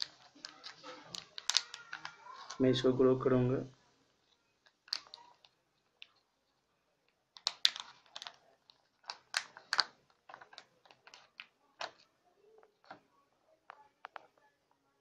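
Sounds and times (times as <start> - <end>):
seeds tapping plastic cup: 0.0 - 2.6.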